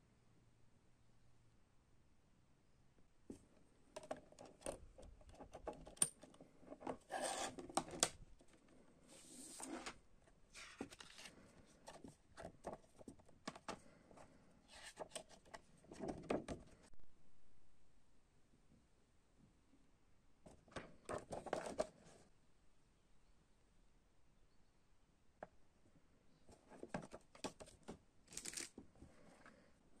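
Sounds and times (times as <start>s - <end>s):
paper rustling and rubbing: 9.1s - 12.1s.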